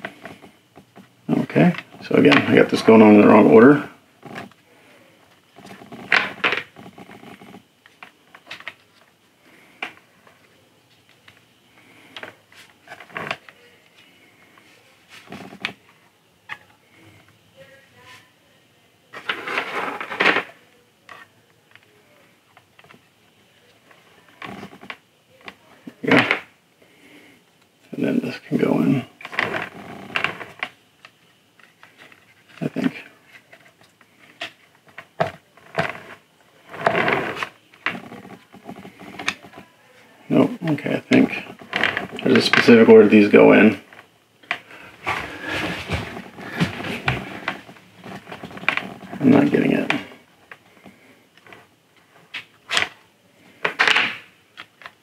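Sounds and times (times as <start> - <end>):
longer louder handling noise: 40.9 - 53.0.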